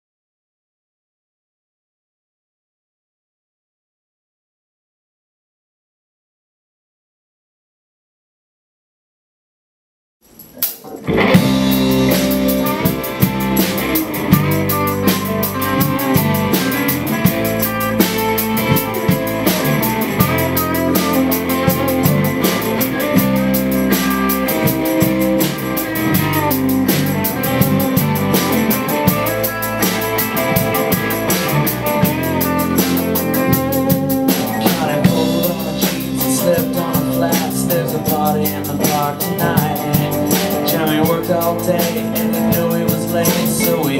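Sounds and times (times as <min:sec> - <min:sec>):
live rock band playing: 0:10.5 - 0:43.9.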